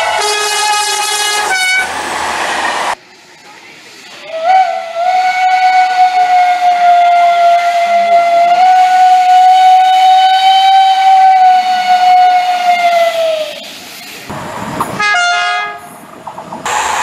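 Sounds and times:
steam locomotive whistle: 0.0 - 1.9, 4.3 - 13.6, 15.0 - 15.9.

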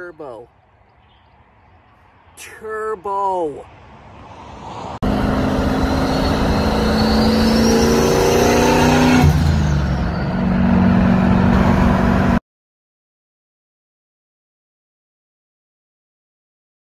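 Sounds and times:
pickup engine accelerating: 5.0 - 12.4
turbo whine: 5.1 - 12.4.

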